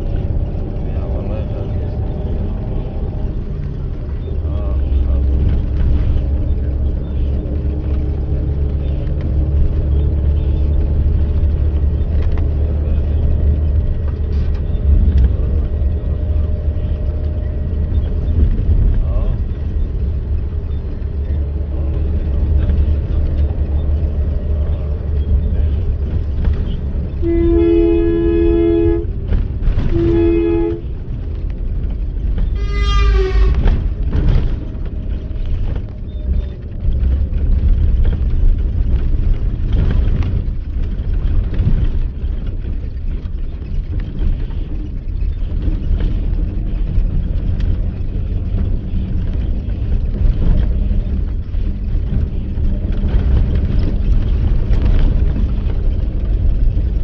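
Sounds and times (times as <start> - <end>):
bus rumbling on road: 0.0 - 57.0
vehicle horn blasts: 27.2 - 29.2, 29.8 - 31.0, 32.6 - 33.8.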